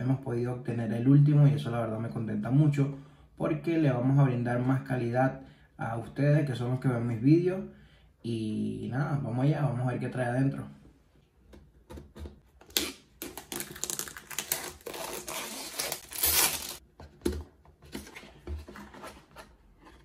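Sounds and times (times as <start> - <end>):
shrink-wrap crinkling and tearing: 12.6 - 16.8.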